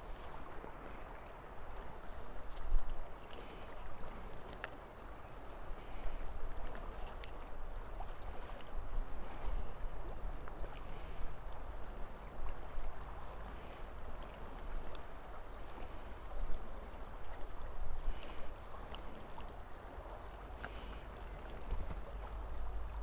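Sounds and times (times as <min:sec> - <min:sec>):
wind rumble on microphone: 0:21.3 - 0:23.0.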